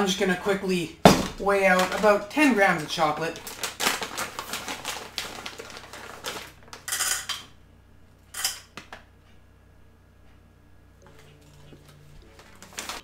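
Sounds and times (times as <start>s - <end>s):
plastic pouch crinkling: 1.4s - 6.9s, 12.2s - 13.0s.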